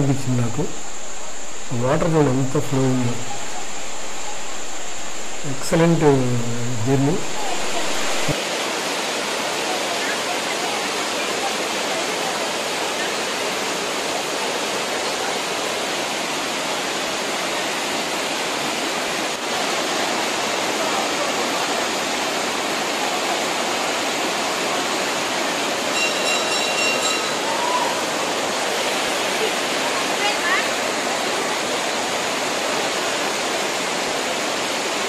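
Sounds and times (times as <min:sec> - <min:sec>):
water rushing over rocks: 0:00.0 - 0:35.0
high steady tone: 0:25.9 - 0:27.8.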